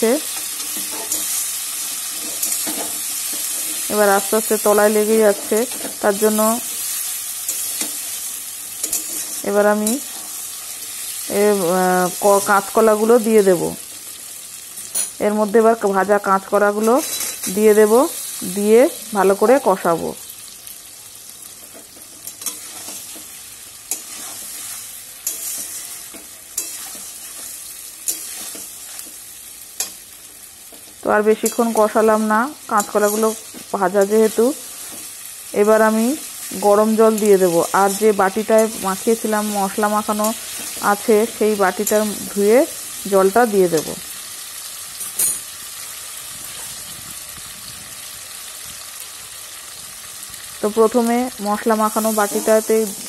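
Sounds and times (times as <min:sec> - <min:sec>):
oil sizzling: 0:00.0 - 0:53.0
metal spatula scraping a wok: 0:00.3 - 0:03.9, 0:06.7 - 0:11.1, 0:16.8 - 0:17.6, 0:21.7 - 0:29.2.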